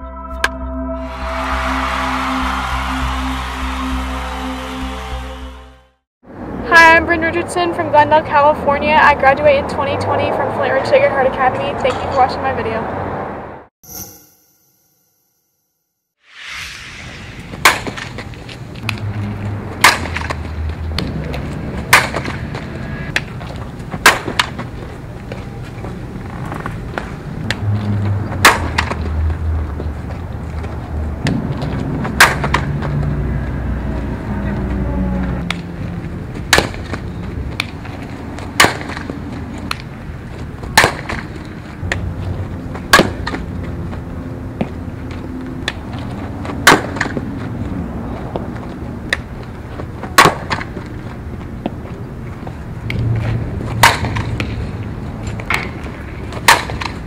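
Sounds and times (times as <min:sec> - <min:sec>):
bat cracking on softball: 0:19.8 - 0:22.5, 0:23.1 - 0:24.7, 0:28.4 - 0:29.1, 0:32.0 - 0:32.7, 0:36.4 - 0:39.9, 0:40.6 - 0:42.0, 0:42.8 - 0:43.4, 0:46.6 - 0:47.2, 0:50.0 - 0:50.9, 0:53.7 - 0:54.6, 0:55.4 - 0:57.0.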